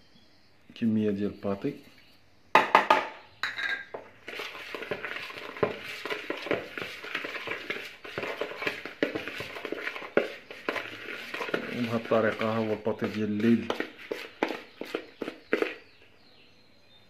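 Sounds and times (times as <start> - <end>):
knocks in bowl: 2.6 - 4.0
crunching and scraping mix: 3.8 - 16.0.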